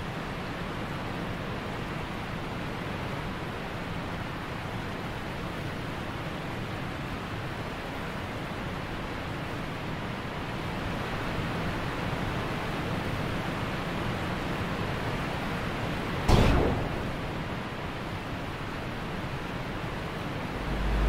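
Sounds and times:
wind-like rushing noise: 0:19.7 - 0:21.0.

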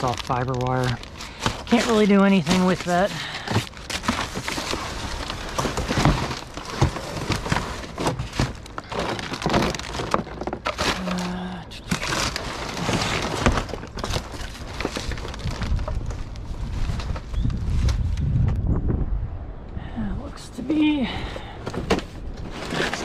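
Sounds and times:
packaging rustling and crinkling: 0:00.0 - 0:18.2, 0:21.6 - 0:23.0
knocks and snaps of items moved: 0:03.4 - 0:11.3.

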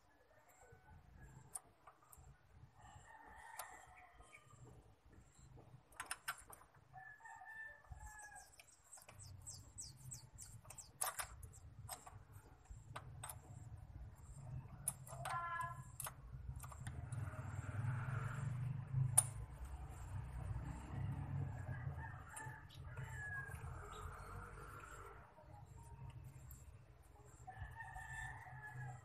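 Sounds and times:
high bird chirps: 0:08.1 - 0:11.7
metal clicks and taps: 0:10.0 - 0:13.7, 0:14.8 - 0:17.2, 0:19.1 - 0:19.5.

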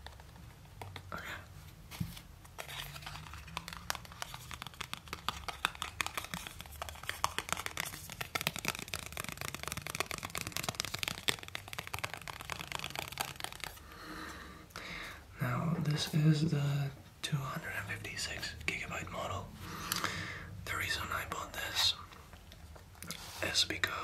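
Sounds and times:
packaging crackling: 0:02.6 - 0:13.8.

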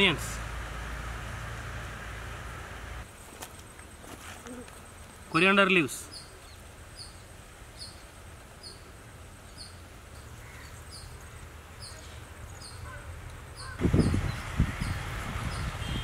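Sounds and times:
bird chirping: 0:06.0 - 0:16.0.

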